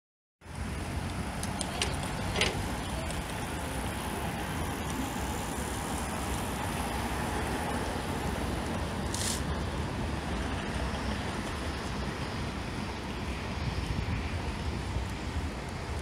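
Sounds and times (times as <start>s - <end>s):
city traffic rumble: 0.4s - 16.0s
brief high hiss: 9.1s - 9.5s.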